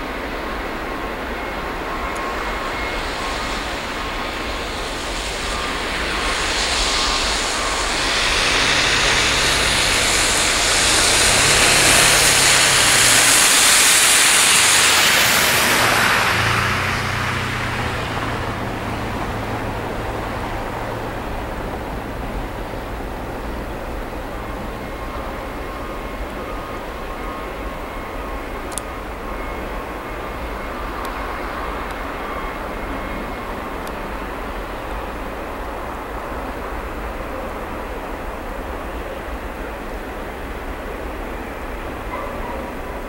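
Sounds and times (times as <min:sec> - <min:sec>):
train wheels rumbling on rail: 0:00.0 - 0:43.0
broad hiss: 0:02.2 - 0:21.7.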